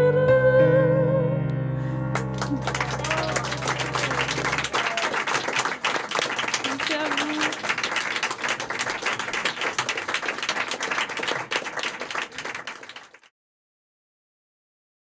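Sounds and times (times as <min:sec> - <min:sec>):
audience applauding: 0:02.1 - 0:13.3.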